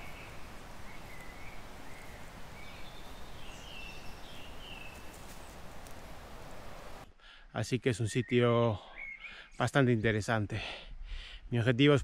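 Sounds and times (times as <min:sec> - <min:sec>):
songbird singing: 0:00.0 - 0:07.0, 0:08.0 - 0:09.7
steady recording hiss: 0:00.0 - 0:07.4.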